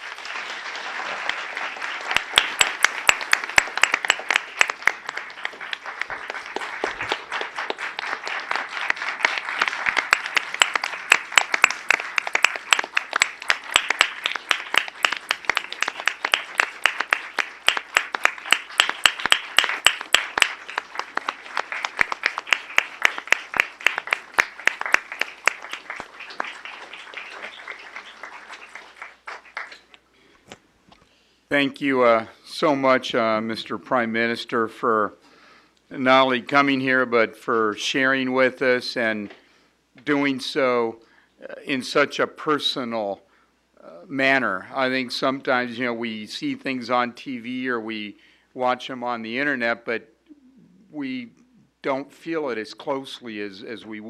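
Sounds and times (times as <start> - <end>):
audience applauding: 0.0 - 30.1.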